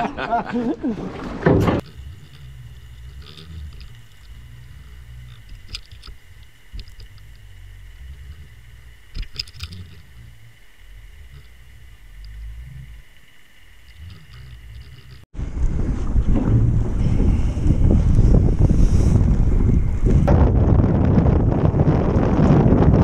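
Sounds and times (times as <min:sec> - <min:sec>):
faint high hum: 0:01.7 - 0:15.6
muffled underwater rumble: 0:01.7 - 0:23.0.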